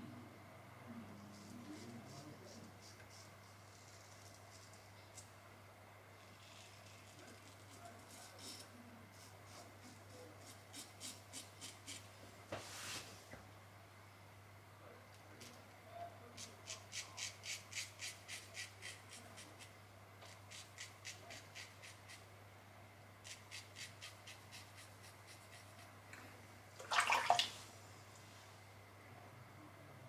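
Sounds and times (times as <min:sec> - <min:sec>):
razor blade scraping stubble: 0:16.6 - 0:19.6.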